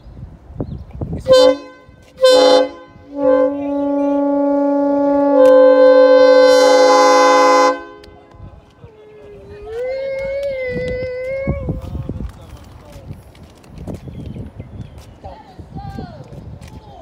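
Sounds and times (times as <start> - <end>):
locomotive air horn blasts: 1.2 - 8.3.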